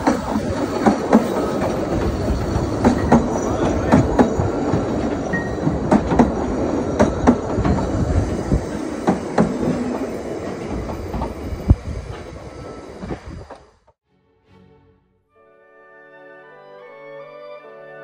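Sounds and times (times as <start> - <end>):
railway carriage wheels clattering: 0.0 - 13.7.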